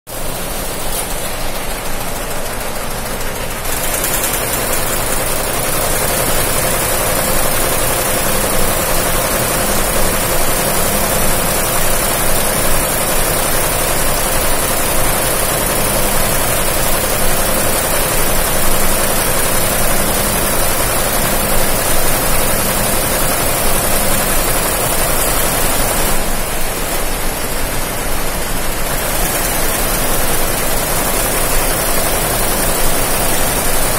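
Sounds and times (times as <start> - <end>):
embroidery machine running: 0.1 - 33.9.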